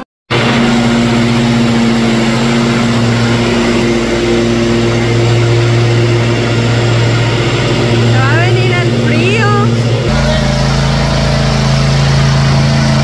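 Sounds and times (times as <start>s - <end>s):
riding lawn mower running: 0.0s - 13.0s.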